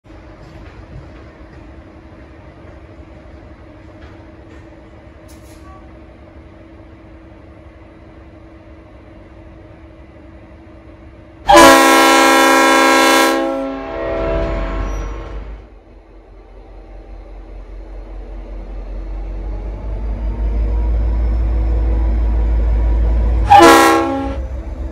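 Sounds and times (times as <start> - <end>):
air horn chord blast: 11.5 - 15.2, 23.5 - 24.4.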